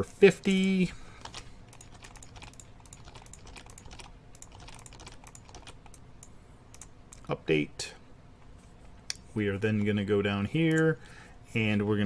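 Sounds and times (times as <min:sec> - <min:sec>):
keyboard typing: 0:00.5 - 0:07.3.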